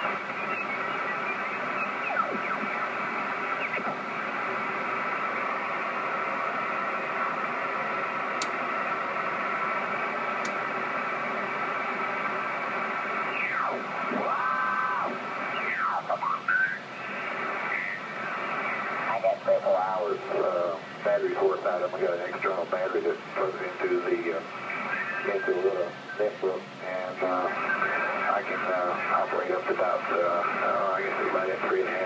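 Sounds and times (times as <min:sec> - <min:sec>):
shortwave receiver hissing: 0:00.0 - 0:32.0
radio whistles sliding in pitch: 0:00.4 - 0:02.8.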